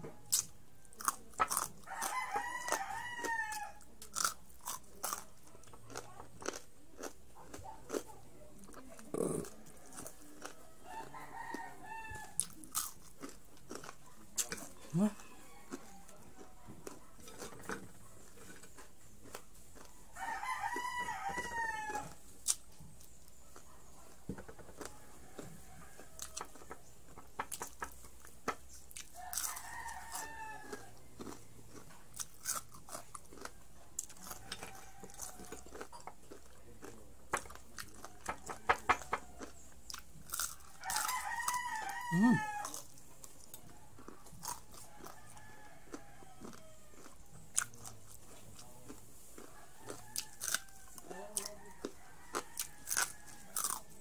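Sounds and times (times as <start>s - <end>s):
crunchy chewing: 0.0s - 54.0s
rooster crowing: 1.8s - 3.8s, 9.7s - 12.5s, 14.9s - 16.7s, 20.1s - 22.2s, 24.7s - 26.6s, 29.1s - 31.4s, 34.2s - 35.9s, 38.0s - 39.6s, 40.5s - 42.8s, 43.8s - 47.1s, 49.4s - 54.0s.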